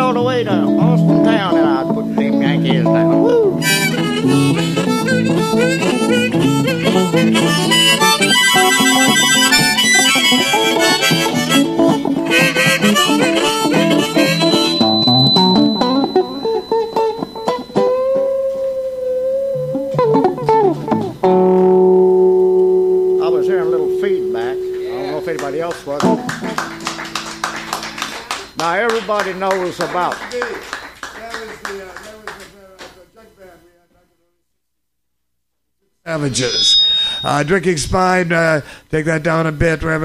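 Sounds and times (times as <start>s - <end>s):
harmonica: 0.0s - 28.8s, 36.3s - 37.8s
acoustic guitar: 0.0s - 29.2s.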